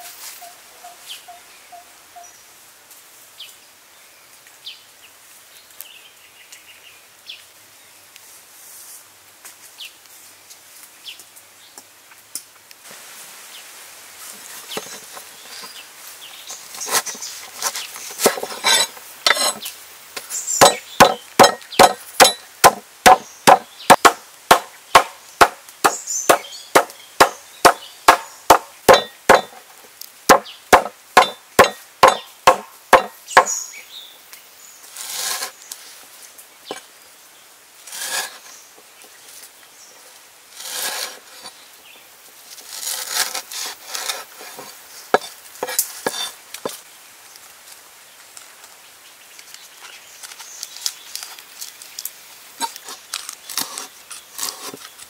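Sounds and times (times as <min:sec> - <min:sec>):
stalks rustling and crackling: 0:14.2 - 0:33.6, 0:37.8 - 0:55.0
pestle pounding on wooden board: 0:20.6 - 0:29.6, 0:30.3 - 0:33.5.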